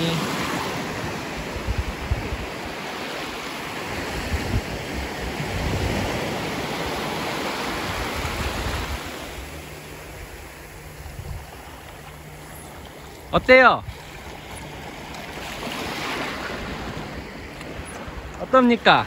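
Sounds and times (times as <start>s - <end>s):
small waves washing on a beach: 0.0s - 19.0s
wind buffeting the microphone: 0.8s - 3.0s, 3.8s - 7.1s, 10.8s - 12.4s, 13.2s - 18.4s.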